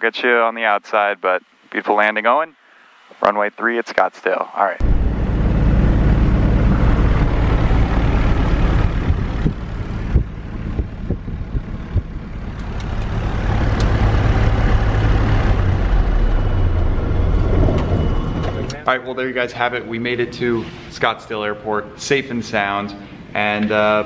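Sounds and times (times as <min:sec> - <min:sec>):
aircraft engine rumble in cabin: 0:04.8 - 0:18.8.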